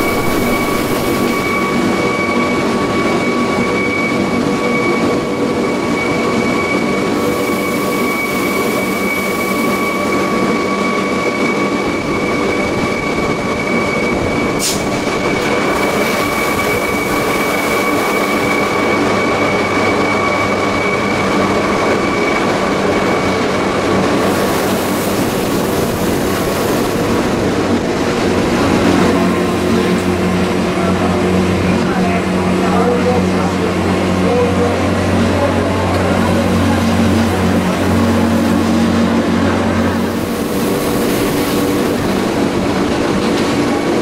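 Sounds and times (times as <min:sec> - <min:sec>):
low hum: 0:00.0 - 0:02.5
high steady whine: 0:00.0 - 0:44.0
railcar rolling rumble: 0:00.0 - 0:44.0.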